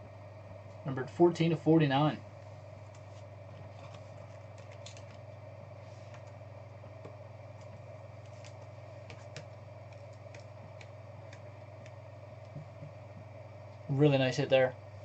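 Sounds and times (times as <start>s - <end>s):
steady low hum: 0.0s - 15.0s
computer keyboard typing clicks: 9.3s - 12.0s.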